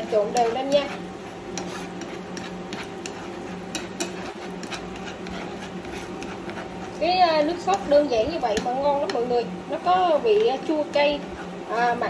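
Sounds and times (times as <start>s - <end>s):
sauce sizzling in a pan: 0.0s - 12.0s
chopsticks clicking on a pan: 7.6s - 7.9s.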